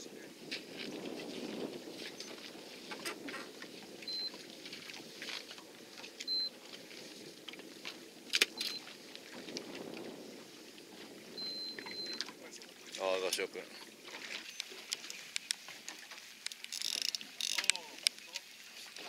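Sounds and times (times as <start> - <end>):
boat and sea rumble: 0.0 - 19.0
fishing reel winding: 16.4 - 18.2.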